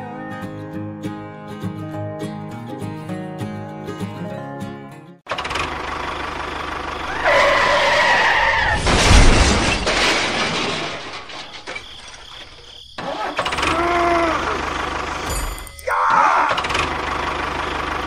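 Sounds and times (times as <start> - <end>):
tractor engine chugging: 5.3 - 8.2, 11.2 - 18.0.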